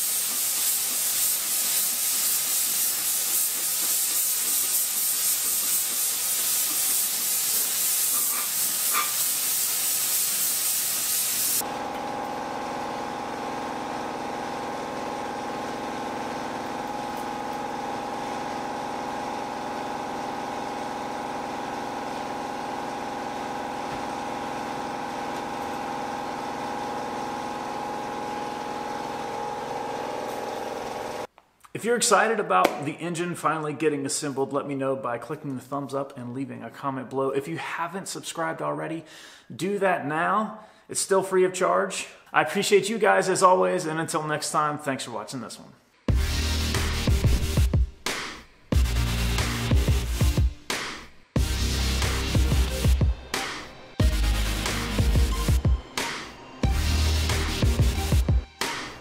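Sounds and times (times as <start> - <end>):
paint spray gun hissing: 0.0 - 11.6.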